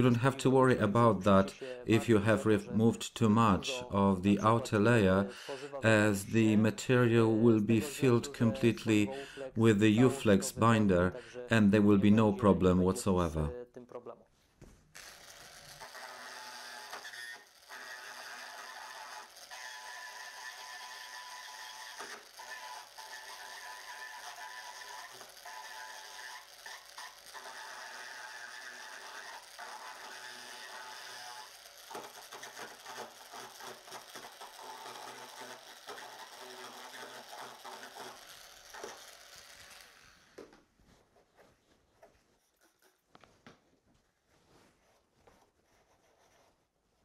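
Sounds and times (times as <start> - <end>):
rotary tool grinding plastic: 15.0 - 40.6.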